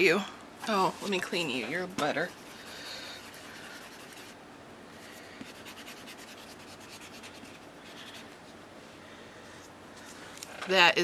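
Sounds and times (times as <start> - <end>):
eraser rubbing on paper: 2.2 - 4.4, 5.1 - 8.4.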